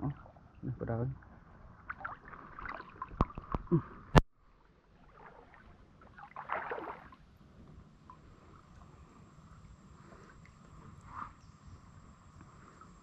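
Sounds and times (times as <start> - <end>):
water sloshing and splashing: 0.0 - 7.4.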